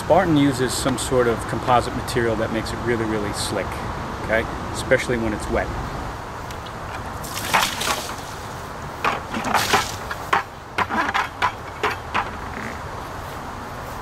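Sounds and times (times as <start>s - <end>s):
water splashing on a wall: 7.0s - 10.5s.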